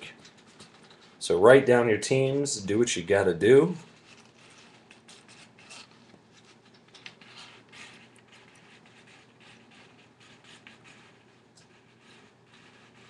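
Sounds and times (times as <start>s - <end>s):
paper sheet rustling: 3.7s - 10.0s.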